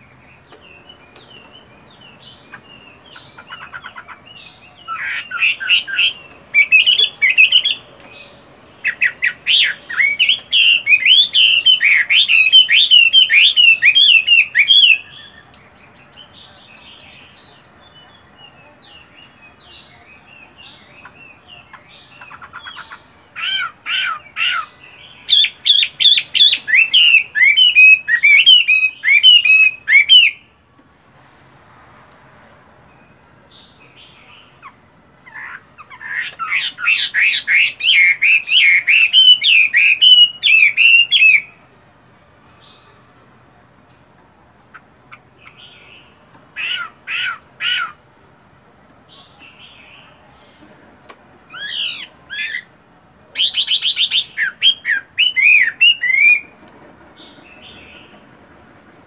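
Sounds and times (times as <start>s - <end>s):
bird singing whistled notes: 4.4s - 17.4s, 24.5s - 30.5s, 36.5s - 41.6s, 53.3s - 56.5s.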